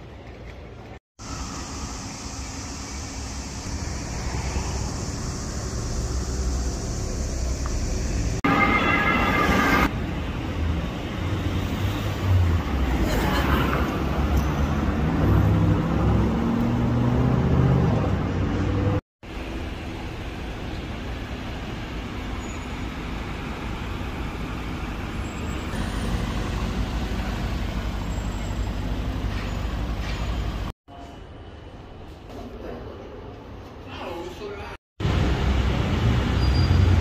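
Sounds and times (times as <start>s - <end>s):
street traffic: 0.0s - 37.0s.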